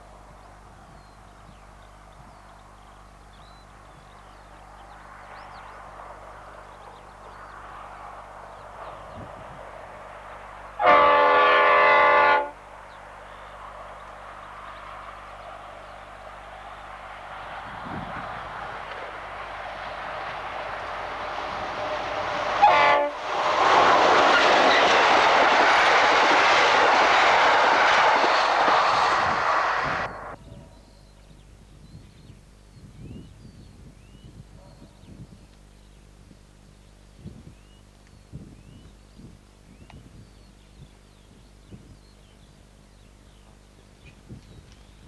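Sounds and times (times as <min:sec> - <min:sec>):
locomotive engine approaching: 0:00.0 - 0:31.0
train passing: 0:01.9 - 0:30.5
diesel locomotive horn: 0:10.8 - 0:12.7, 0:20.8 - 0:24.9.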